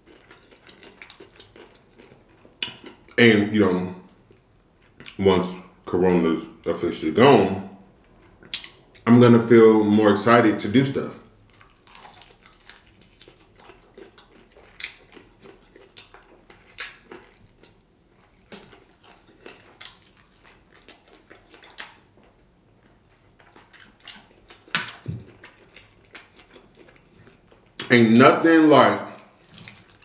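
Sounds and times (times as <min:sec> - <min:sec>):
crunching fried chicken: 0:00.0 - 0:03.3, 0:11.2 - 0:28.2, 0:29.1 - 0:30.0.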